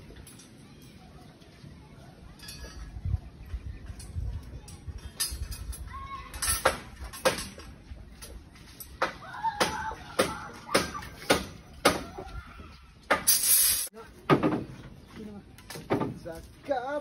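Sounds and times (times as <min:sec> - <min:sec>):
knocks and clanks on timber and steel: 0:06.4 - 0:12.3, 0:14.2 - 0:15.0, 0:15.6 - 0:16.4.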